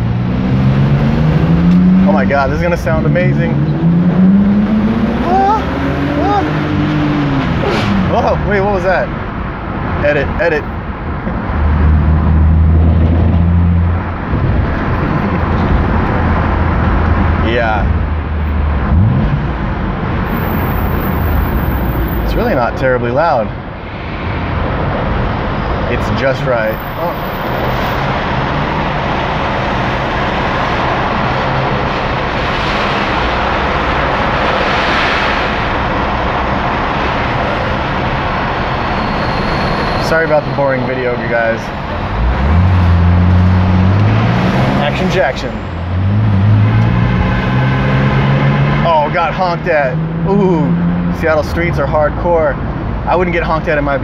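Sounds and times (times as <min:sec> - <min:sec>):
engine and road noise: 0:00.0 - 0:54.0.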